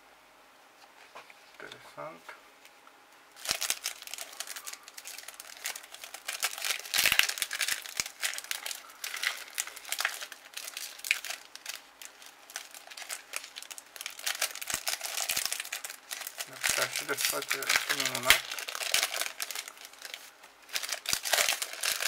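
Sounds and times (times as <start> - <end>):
foil wrapper crinkling and tearing: 3.4 - 22.0.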